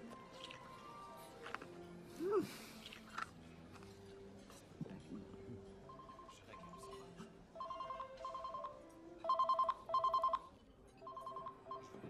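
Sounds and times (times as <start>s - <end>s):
phone ringtone trilling: 7.6s - 12.0s.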